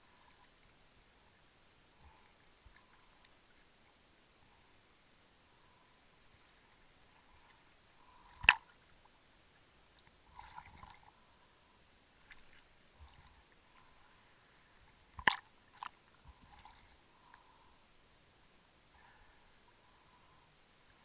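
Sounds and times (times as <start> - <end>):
scraping and water sloshing: 10.2 - 11.2, 15.1 - 17.4.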